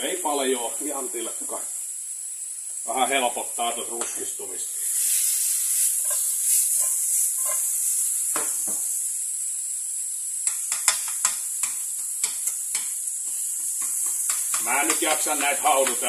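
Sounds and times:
onions sizzling in pan: 0.0 - 16.0
spatula tapping and scraping pan: 6.0 - 7.7, 10.4 - 16.0.

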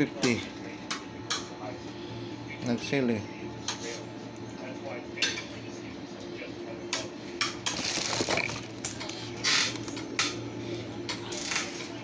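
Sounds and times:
steady low hum: 0.0 - 12.0
plastic crinkling rustle: 7.8 - 9.8.

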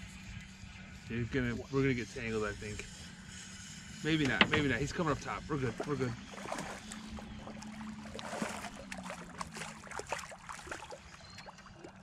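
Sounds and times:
low hum: 0.0 - 12.0
light water splashes: 4.1 - 12.0.

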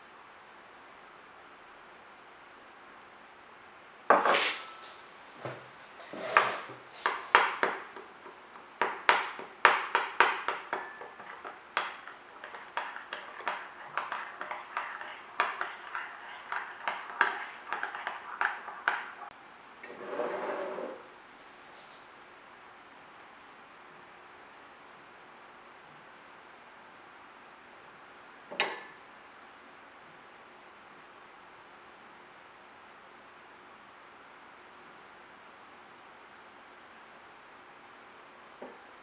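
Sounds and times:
utensil scraping a dish: 4.1 - 4.9, 6.0 - 7.8, 8.8 - 19.3, 19.9 - 21.0
utensils clinking against a bowl: 8.8 - 20.0, 28.6 - 29.0.

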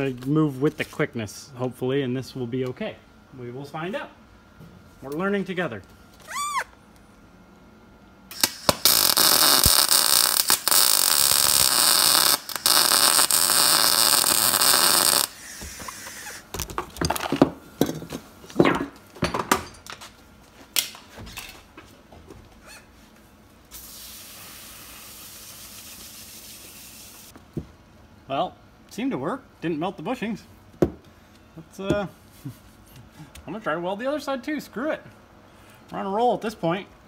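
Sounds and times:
arc welder crackling: 8.3 - 16.8
garden hose spraying: 23.7 - 27.3.

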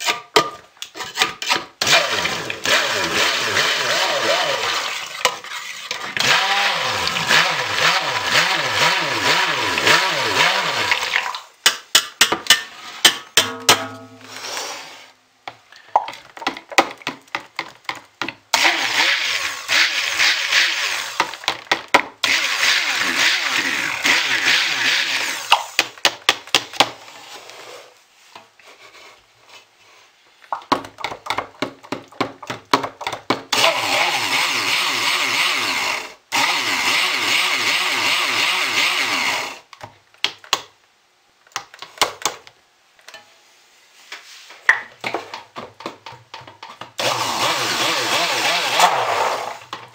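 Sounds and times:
stick blender blending: 1.0 - 11.3, 17.0 - 25.8, 33.5 - 39.7, 47.0 - 49.8.

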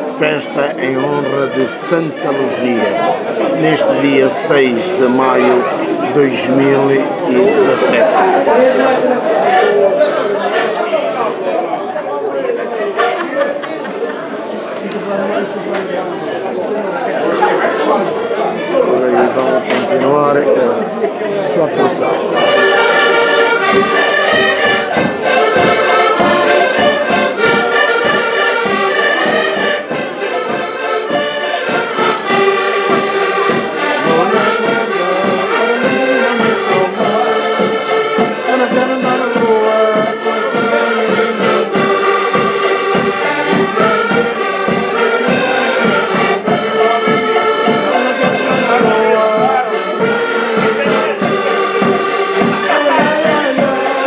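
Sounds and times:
button accordions playing: 0.0 - 11.4, 17.2 - 54.0
bass drum beat: 22.5 - 53.9.

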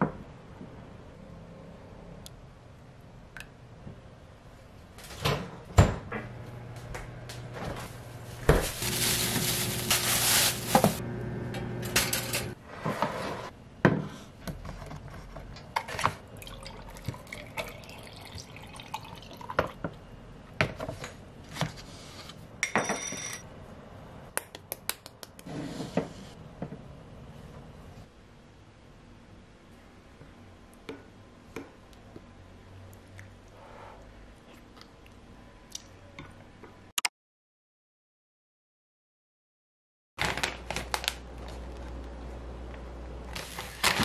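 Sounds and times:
microwave oven humming: 5.8 - 12.6.

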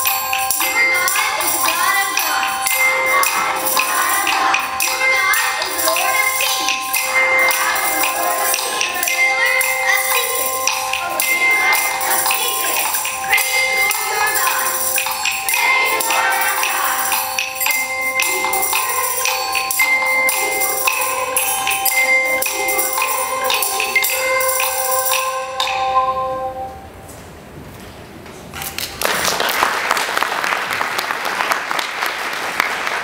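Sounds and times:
jingling bell strokes: 0.0 - 25.9
voices: 0.0 - 26.2
ringing bell music: 0.0 - 27.0.

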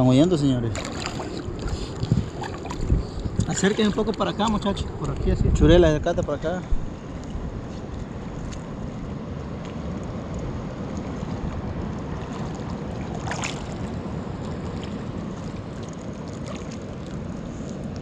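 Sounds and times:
water sloshing and lapping: 0.0 - 5.4, 6.7 - 18.0
wind buffeting microphone: 0.0 - 16.6
water splash: 0.6 - 4.2, 10.9 - 17.7.

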